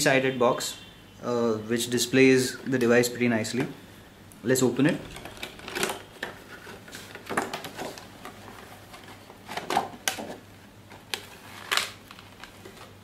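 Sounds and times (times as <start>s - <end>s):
packaging being handled and opened: 4.8s - 13.0s.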